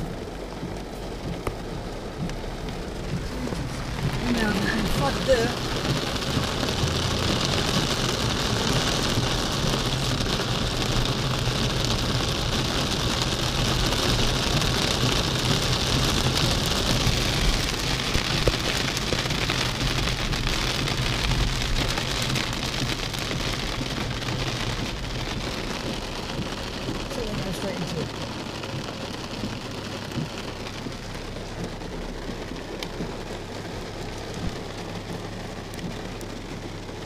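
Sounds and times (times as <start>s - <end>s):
car engine hum: 0.0s - 37.0s
heavy rain drumming on car roof: 0.0s - 37.0s.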